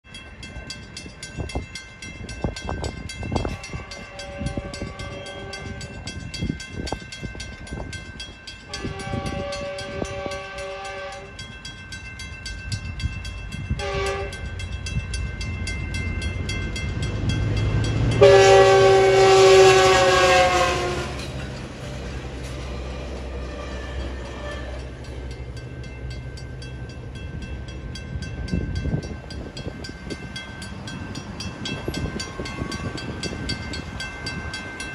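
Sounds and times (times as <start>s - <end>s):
crossing bells ringing: 0.0s - 34.9s
train rumble: 0.0s - 34.9s
train horn blasts: 3.4s - 6.2s, 8.7s - 11.4s, 13.7s - 14.6s, 18.1s - 21.4s, 23.3s - 24.9s.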